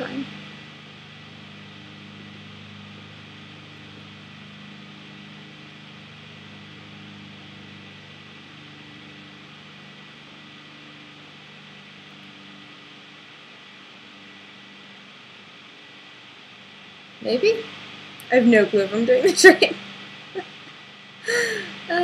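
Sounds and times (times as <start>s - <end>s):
low hum of several tones: 0.0s - 22.0s
even hiss: 14.9s - 22.0s.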